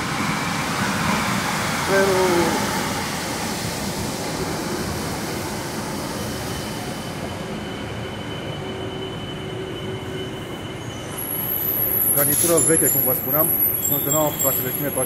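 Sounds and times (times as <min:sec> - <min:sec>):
metro train braking: 0:00.0 - 0:15.0
faint thin squeal: 0:06.3 - 0:15.0.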